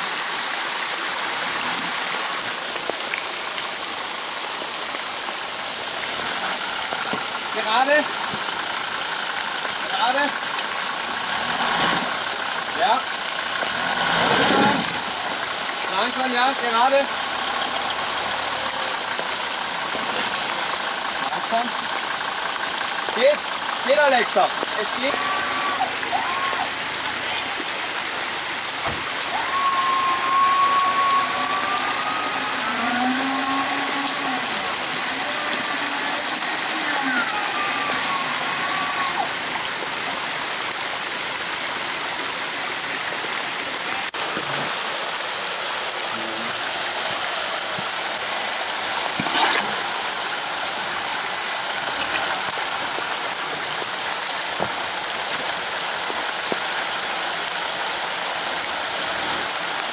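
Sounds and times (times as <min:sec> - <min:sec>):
creek water running over rocks: 0:00.0 - 0:59.9
rain: 0:00.0 - 0:59.9
mechanical whine: 0:29.2 - 0:39.4.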